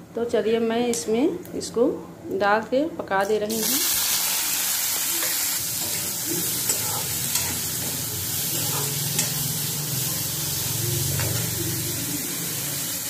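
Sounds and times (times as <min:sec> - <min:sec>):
onions sizzling in hot oil: 0:03.2 - 0:13.0.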